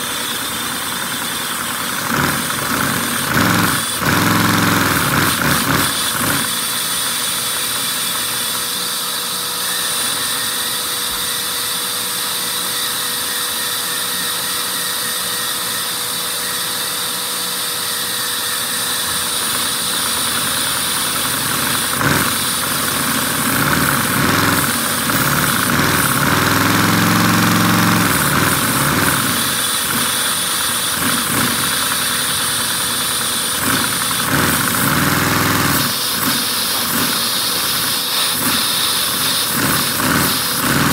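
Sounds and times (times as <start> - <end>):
toy engine pistons clattering: 1.7 - 6.6, 20.0 - 40.9.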